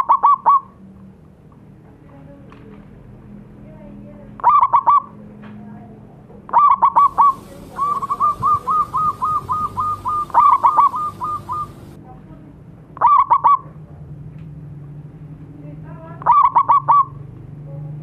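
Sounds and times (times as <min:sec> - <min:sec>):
dove cooing: 0:00.0 - 0:00.7, 0:04.4 - 0:05.1, 0:06.5 - 0:12.0, 0:13.0 - 0:13.6, 0:16.2 - 0:17.1.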